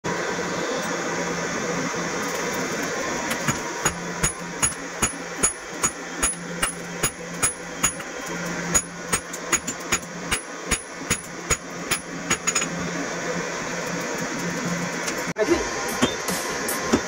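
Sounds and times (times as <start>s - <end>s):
hammer striking iron on anvil: 3.4s - 8.1s, 8.7s - 12.8s.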